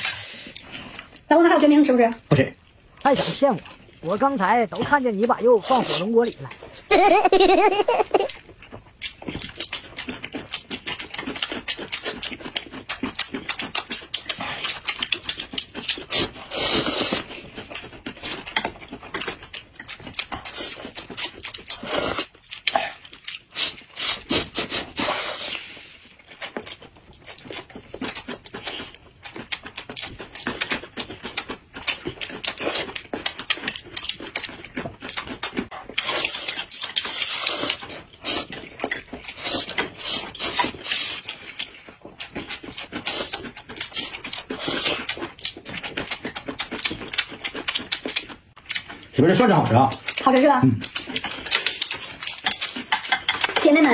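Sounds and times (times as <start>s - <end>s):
wet chewing and smacking: 0.0s - 6.9s, 8.0s - 53.9s
loud noodle slurps: 16.0s - 17.4s, 21.8s - 26.0s, 36.0s - 38.6s, 39.3s - 41.5s, 43.0s - 45.2s.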